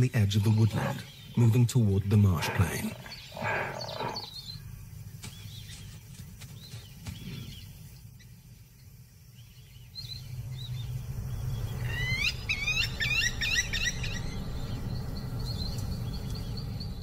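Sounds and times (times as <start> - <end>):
wild birds calling: 0.0 - 17.0
low ambient rumble: 7.5 - 17.0.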